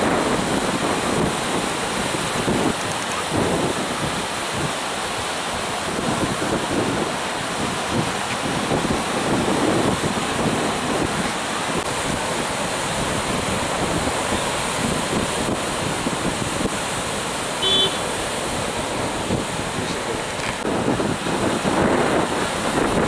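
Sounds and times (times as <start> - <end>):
surf breaking on beach: 0.0 - 23.0
wind buffeting microphone: 0.0 - 23.0
brief high tone: 17.6 - 18.0.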